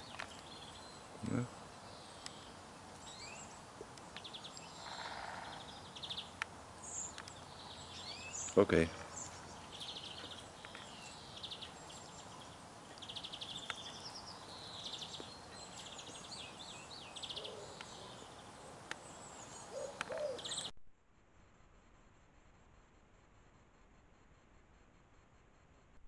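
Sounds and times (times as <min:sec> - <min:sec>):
lower bird calls: 0:00.0 - 0:20.7
songbirds chirping and trilling: 0:00.0 - 0:20.7.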